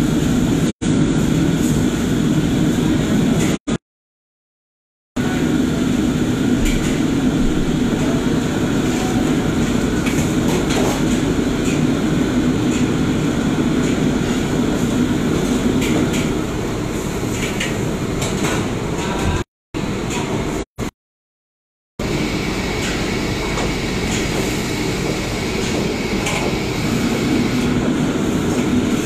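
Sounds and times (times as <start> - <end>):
gas wok burners rushing: 5.2 - 20.6, 22.0 - 29.0.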